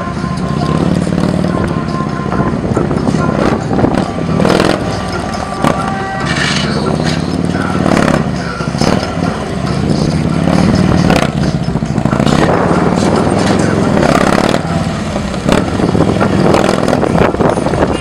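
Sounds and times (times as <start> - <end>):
motorcycle engine at low revs: 0.0 - 18.0.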